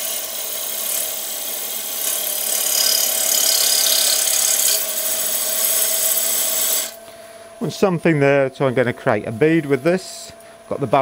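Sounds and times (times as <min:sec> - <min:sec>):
lathe gouge shearing wood: 0:00.0 - 0:07.0, 0:07.7 - 0:10.4
steady hum: 0:02.9 - 0:11.0.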